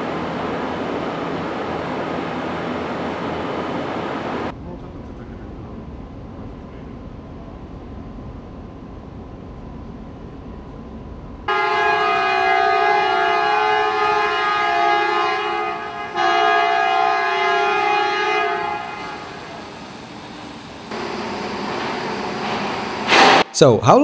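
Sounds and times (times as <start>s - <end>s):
crane warning horn blasts: 11.5s - 20.1s
rush of machine noise: 17.5s - 23.5s.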